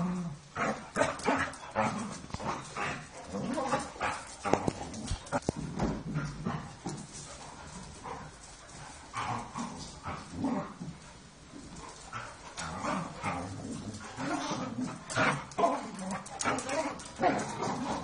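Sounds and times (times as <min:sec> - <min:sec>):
dogs barking and yipping: 0:14.0 - 0:18.0.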